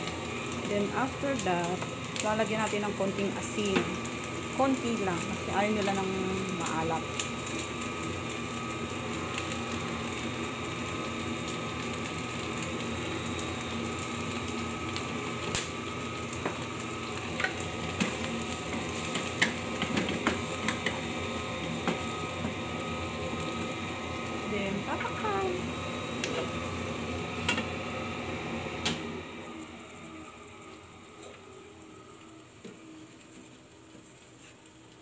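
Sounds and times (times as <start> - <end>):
beans and meat sizzling in wok: 0.0 - 35.0.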